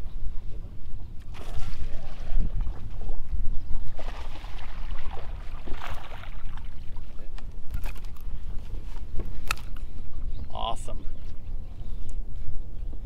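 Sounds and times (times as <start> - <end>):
wind rumbling on microphone: 0.0 - 13.0
water lapping against boat hull: 1.2 - 9.7.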